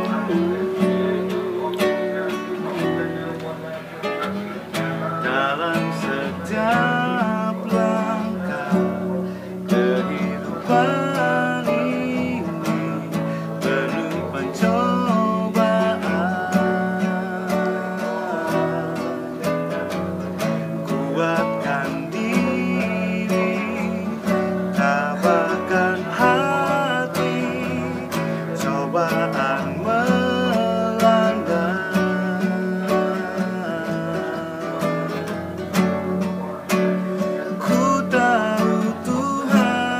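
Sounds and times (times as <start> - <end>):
acoustic guitar strumming: 0.0 - 39.9
man singing: 0.0 - 39.9.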